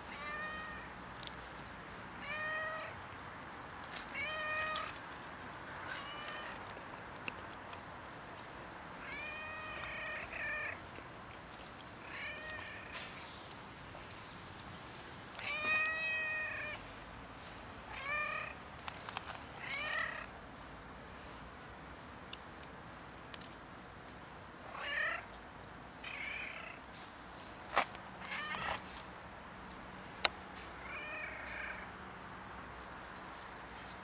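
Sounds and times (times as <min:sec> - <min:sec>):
cat meowing: 0:00.1 - 0:00.9, 0:02.2 - 0:03.0, 0:15.4 - 0:16.8.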